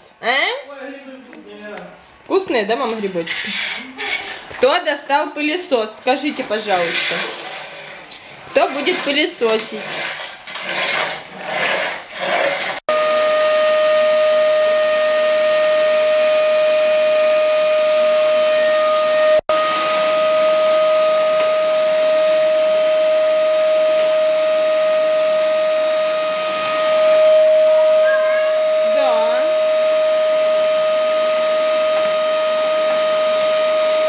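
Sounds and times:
vacuum cleaner running: 12.2s - 34.0s.

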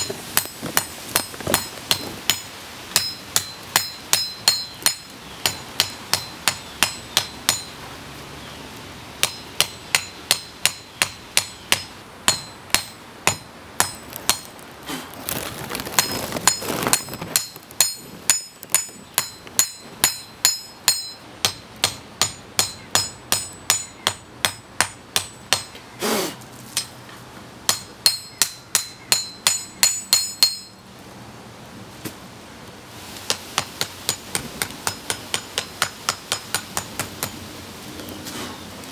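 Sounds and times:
hammer striking metal on anvil: 1.2s - 7.8s, 9.2s - 14.5s, 17.4s - 25.8s, 27.7s - 30.8s.

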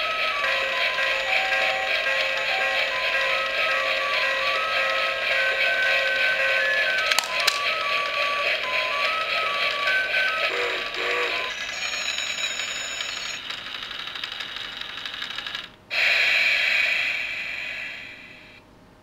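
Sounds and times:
toy tune: 0.0s - 13.4s
toy train rattling on track: 0.0s - 17.0s.

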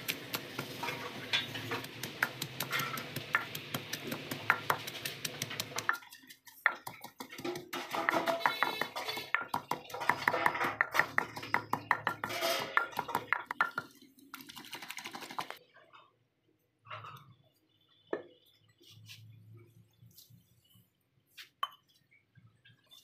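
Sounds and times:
wooden pestle pounding: 0.0s - 13.9s.

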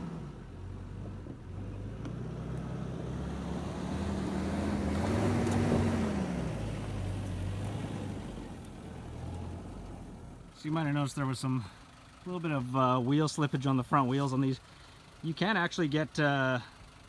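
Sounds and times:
car engine pulling hard uphill: 0.0s - 17.0s
wheels slipping on dirt: 2.0s - 14.6s.

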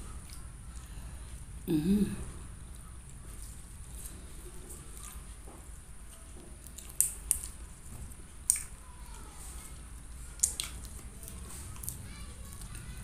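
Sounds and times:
person chewing food: 0.0s - 13.0s
mouth clicks and smacks: 6.6s - 7.6s, 8.4s - 8.8s, 10.3s - 12.0s.

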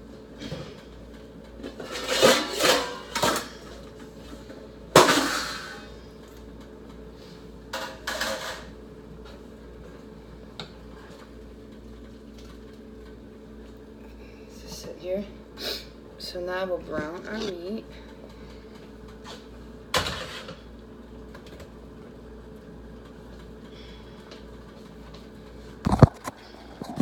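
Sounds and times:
metal cookware clattering: 1.8s - 3.6s, 7.8s - 8.7s.

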